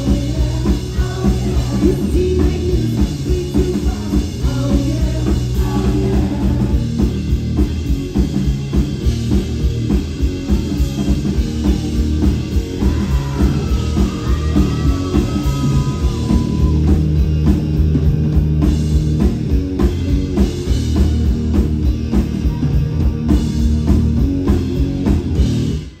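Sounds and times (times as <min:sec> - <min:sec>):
bass guitar: 0:00.0 - 0:26.0
drum kit beat: 0:00.0 - 0:26.0
electric guitar: 0:00.0 - 0:26.0.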